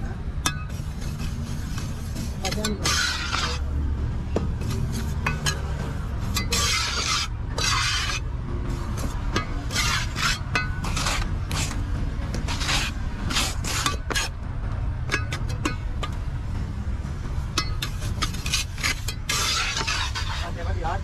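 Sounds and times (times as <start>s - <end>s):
trowel scraping wet concrete: 0.5s - 3.7s, 4.6s - 14.4s, 17.6s - 21.0s.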